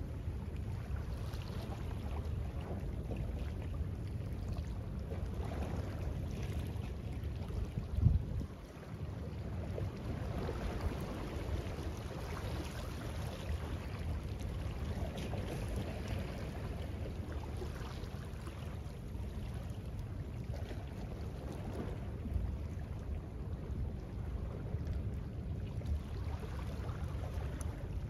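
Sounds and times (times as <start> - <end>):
wind buffeting microphone: 7.4 - 9.1.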